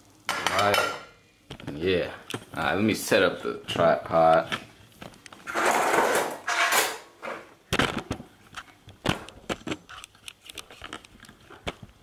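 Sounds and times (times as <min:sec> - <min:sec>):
tripod scraping: 0:05.4 - 0:07.5.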